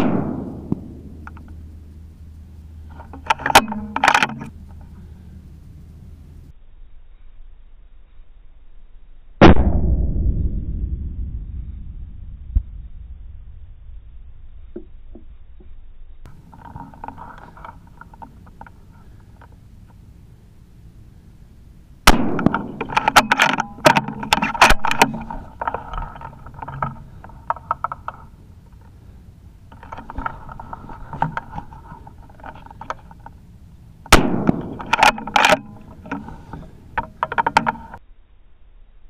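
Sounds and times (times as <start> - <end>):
rifle shots: 0.0 - 1.2, 9.4 - 11.0, 22.0 - 23.6, 34.1 - 35.4
metallic clicks and rattles: 22.4 - 29.0, 34.0 - 38.0.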